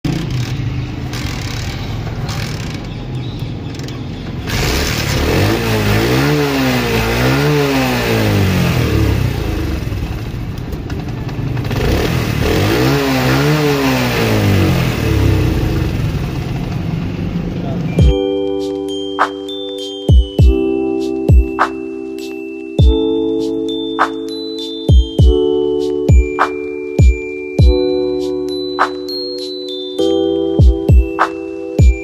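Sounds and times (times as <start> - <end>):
motorcycle engine revving: 0.0 - 18.1.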